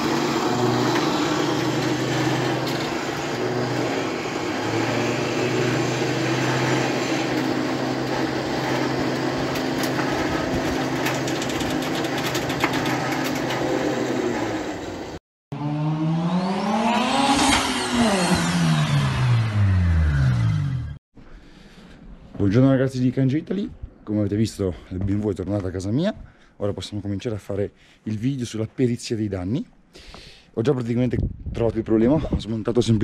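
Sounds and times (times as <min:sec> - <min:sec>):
truck engine and winch hum: 0:00.0 - 0:15.2.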